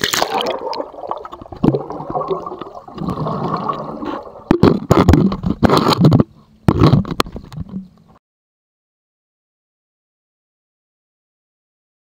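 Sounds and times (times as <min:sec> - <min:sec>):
underwater sloshing and bubbling: 0:00.0 - 0:08.1.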